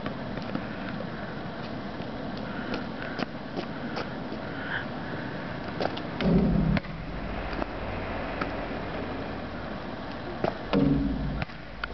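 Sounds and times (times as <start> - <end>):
basketball bouncing on asphalt: 5.8 - 7.0, 10.4 - 11.9
loud low hum: 6.1 - 11.9.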